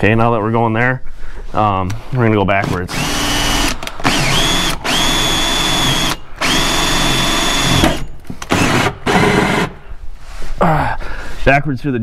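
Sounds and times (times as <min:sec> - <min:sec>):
drill hole saw grinding fibreglass: 0:02.5 - 0:09.8.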